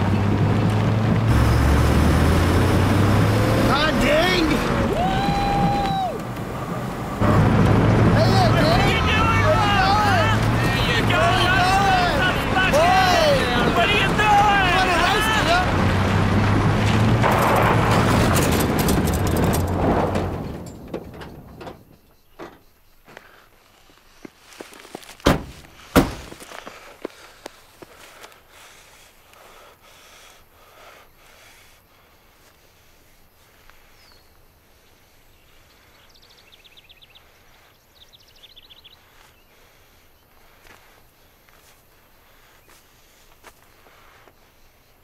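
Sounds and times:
car engine running: 0.0s - 21.7s
tyres on gravel: 0.0s - 29.6s.

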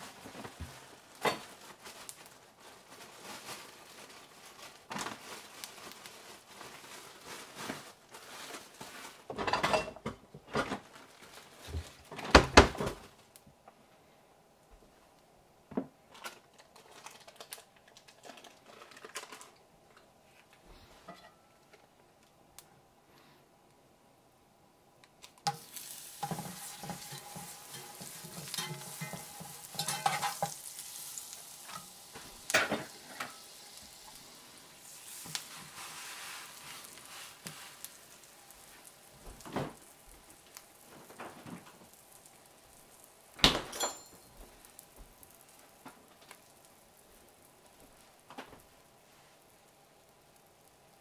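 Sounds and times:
butter sizzling in skillet: 25.4s - 51.0s
metal spatula scraping and knocking: 26.2s - 30.6s.

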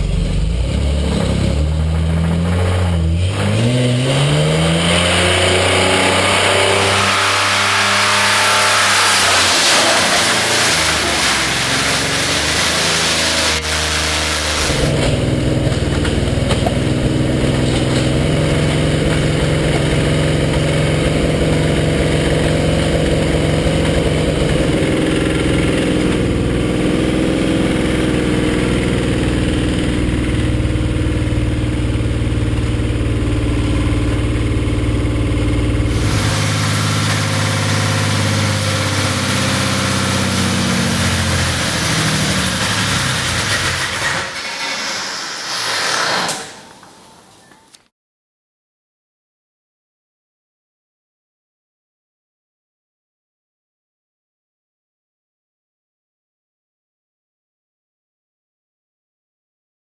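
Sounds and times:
engine running rough: 0.0s - 44.8s
car engine screaming on rev limiter: 0.0s - 46.9s
sharp crack of engine breaking: 0.2s - 21.6s, 35.6s - 47.3s.

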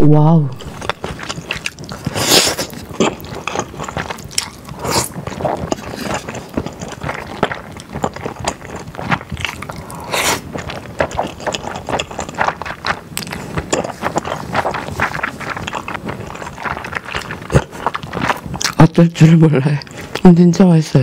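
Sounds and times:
wet sticky chewing: 0.5s - 20.3s.

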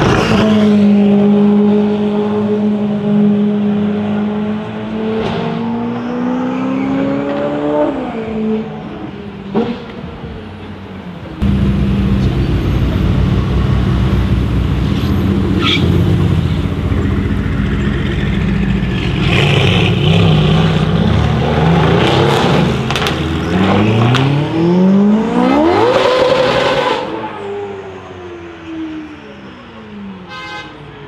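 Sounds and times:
car engines idling: 9.9s - 21.0s.

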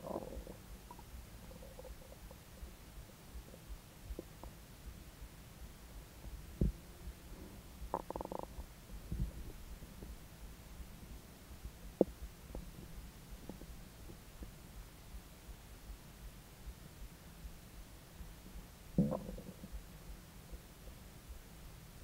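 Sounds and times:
stomach gurgling: 0.0s - 2.5s, 7.9s - 9.6s, 19.0s - 19.8s.

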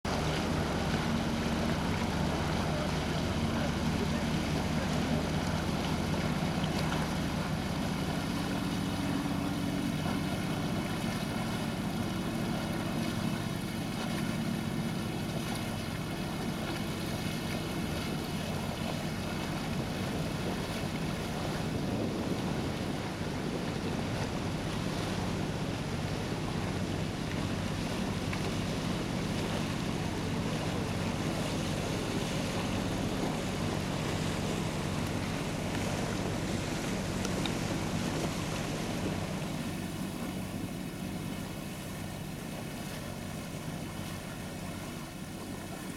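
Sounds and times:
boat engine running: 0.0s - 45.9s
water rushing: 0.0s - 45.9s
wind noise on microphone: 19.6s - 27.0s.

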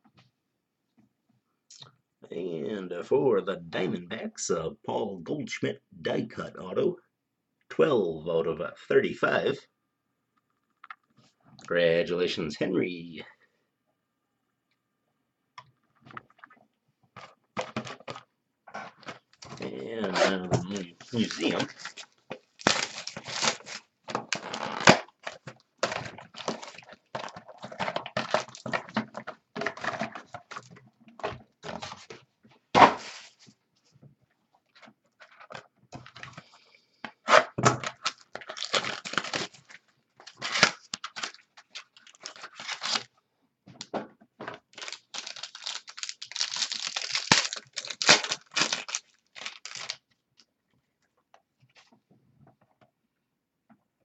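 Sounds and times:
plastic wrapping tearing and crinkling: 19.0s - 28.9s, 37.3s - 43.1s, 44.7s - 50.2s.

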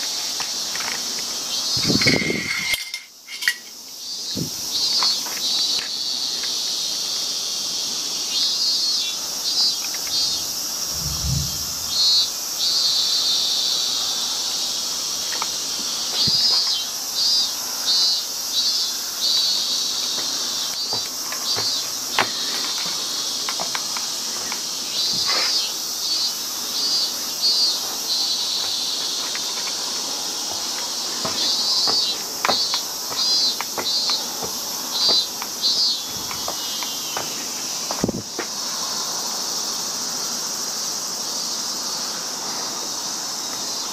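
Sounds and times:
insects droning: 0.0s - 43.9s
rapid pulsed insect chirps: 0.0s - 43.9s
low thump: 10.9s - 12.1s
footsteps on wooden steps: 20.1s - 25.6s, 28.5s - 38.6s.

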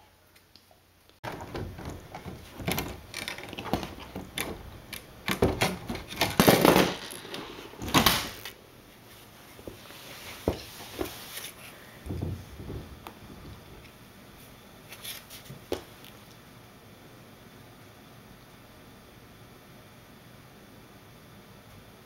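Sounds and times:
plastic frame being handled: 1.2s - 8.4s.

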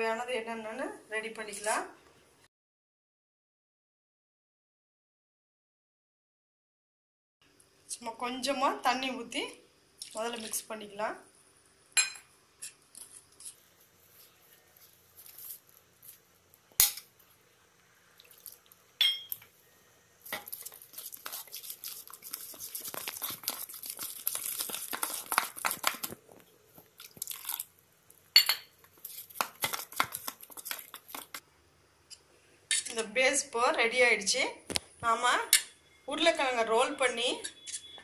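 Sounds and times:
spoon clinking against metal bowl: 19.0s - 19.4s, 28.4s - 28.7s
wet scraping of batter: 20.3s - 26.2s, 26.8s - 27.7s, 28.9s - 31.4s.

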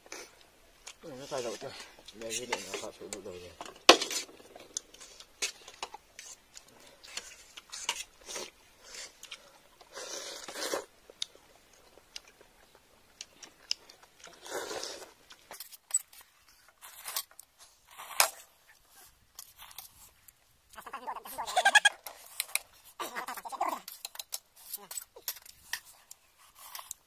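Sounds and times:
chewing: 4.2s - 27.0s
noodles slurped: 6.2s - 11.2s, 14.0s - 15.5s.

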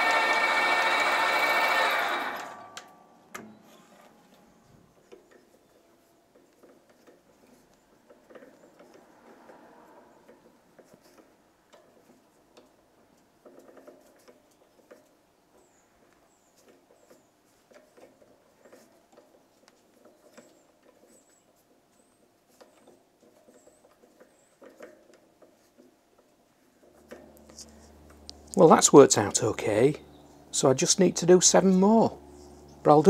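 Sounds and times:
drill boring metal: 0.0s - 2.9s
lathe running: 0.0s - 3.0s, 27.0s - 33.0s
faint clicks and scrapes: 3.6s - 28.6s.

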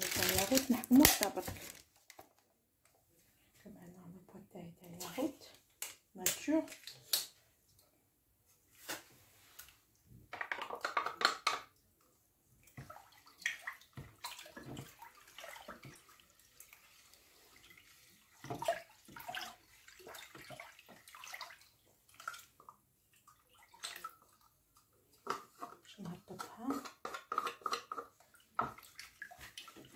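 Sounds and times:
liquid sloshing in a bowl: 12.0s - 29.9s.

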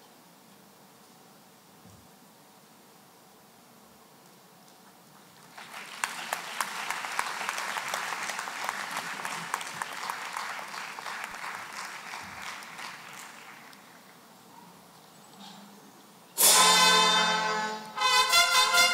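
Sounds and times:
audience applause: 5.4s - 14.3s.

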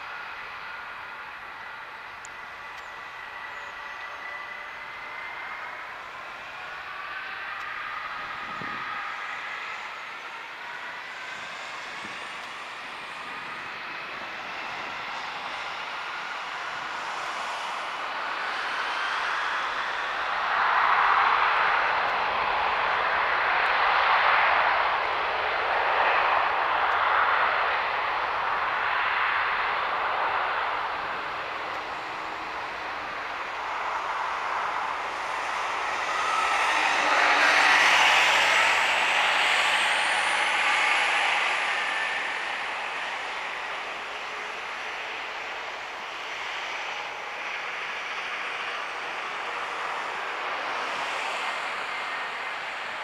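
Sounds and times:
high whine falling in pitch: 0.0s - 53.0s
jet engines roaring: 0.0s - 53.0s.

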